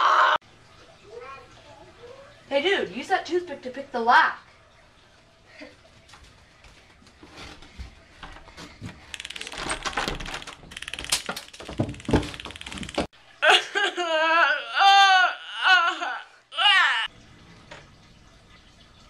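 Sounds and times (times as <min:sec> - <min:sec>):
lock rattling and scraping: 0:09.1 - 0:13.1
boy wailing sob: 0:13.4 - 0:17.1.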